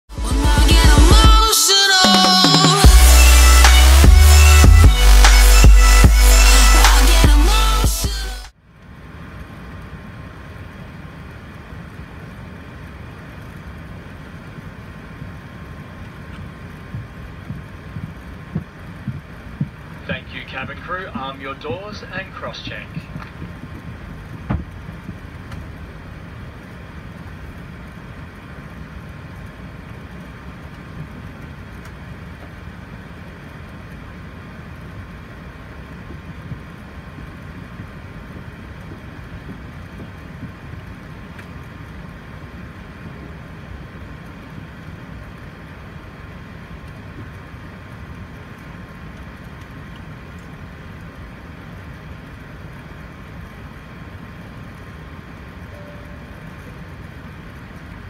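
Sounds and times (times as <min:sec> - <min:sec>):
aircraft cabin rumble and hiss: 0:08.5 - 0:58.0
faint steady tone: 0:25.8 - 0:58.0.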